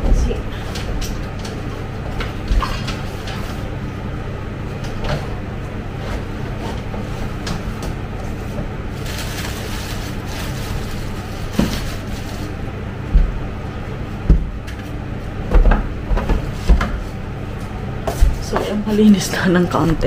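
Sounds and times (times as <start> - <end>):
steady low hum: 0.0 - 20.0
knocks and thuds on shelves: 13.1 - 13.4, 14.2 - 14.7, 15.4 - 17.1.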